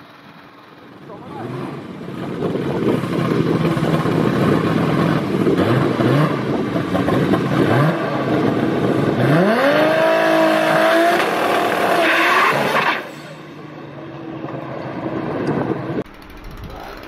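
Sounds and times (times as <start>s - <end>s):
engine revving high: 1.1s - 13.6s.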